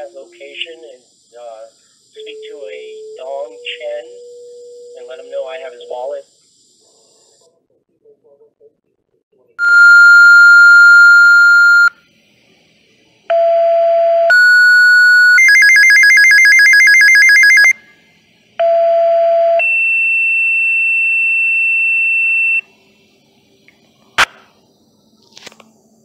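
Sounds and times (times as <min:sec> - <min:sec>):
pager paging tones: 0:09.6 - 0:11.9, 0:14.3 - 0:17.7
pager alert warbling: 0:14.3 - 0:17.8.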